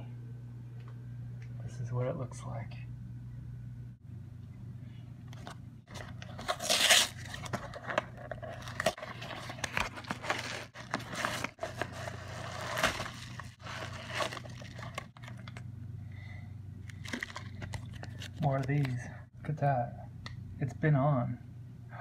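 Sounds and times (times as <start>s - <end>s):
steady low hum: 0.0s - 22.0s
packaging rustling and crinkling: 5.4s - 15.6s, 16.9s - 18.9s.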